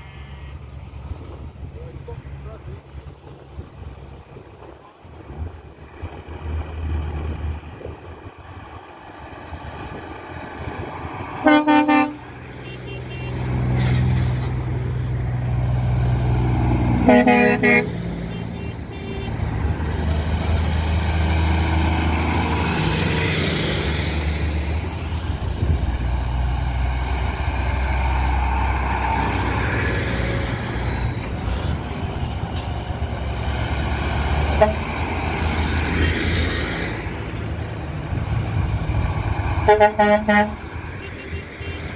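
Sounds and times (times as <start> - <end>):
trucks driving past: 0.0 - 41.9
truck horn blasts: 11.4 - 13.5, 17.0 - 19.4, 34.5 - 35.1, 39.6 - 41.9.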